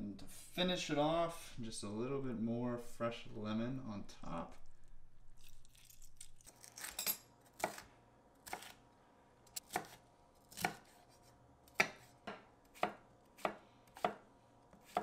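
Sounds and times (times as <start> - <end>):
knife chopping on wooden board: 9.6 - 15.0.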